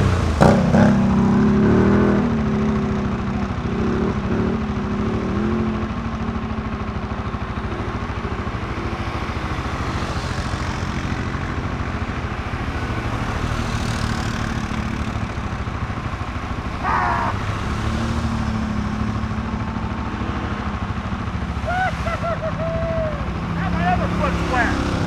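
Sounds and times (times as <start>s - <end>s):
atv engines running: 0.0s - 25.0s
voices calling out: 15.0s - 18.1s, 19.0s - 25.0s.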